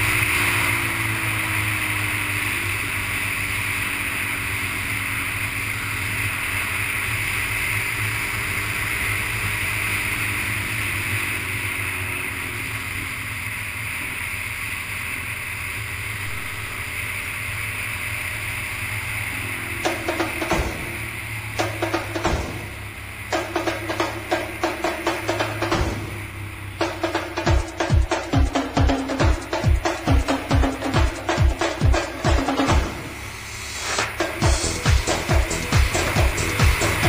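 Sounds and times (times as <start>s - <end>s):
motorcycle engine droning: 0.0s - 37.0s
drum beats from music: 19.8s - 37.0s.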